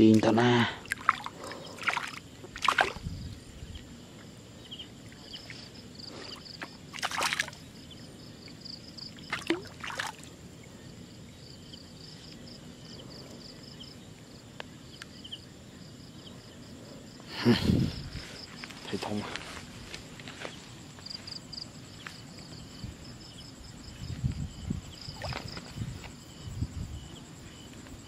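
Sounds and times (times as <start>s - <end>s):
water splashes: 0.7s - 3.0s, 6.6s - 7.6s, 9.2s - 10.3s, 25.1s - 25.7s
fish thrashing at water surface: 7.0s - 7.6s.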